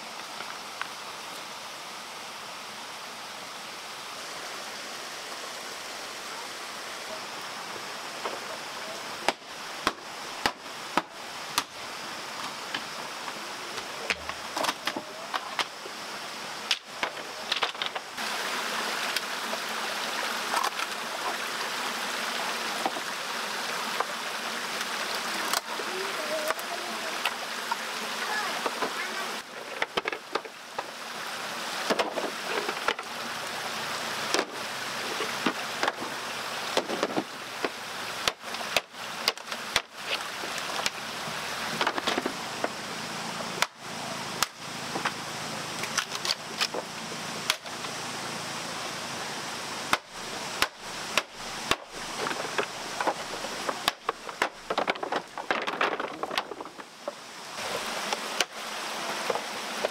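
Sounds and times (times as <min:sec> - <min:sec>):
stream and waterfall rushing: 0:00.0 - 0:59.9
bamboo poles knocking: 0:49.9 - 0:56.9.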